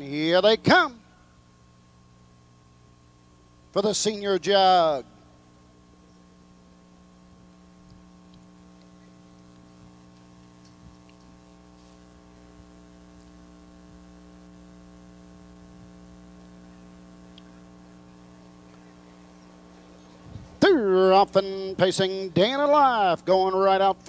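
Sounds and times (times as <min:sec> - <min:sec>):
faint mains hum: 0:00.0 - 0:24.0
small clicks: 0:07.8 - 0:11.9.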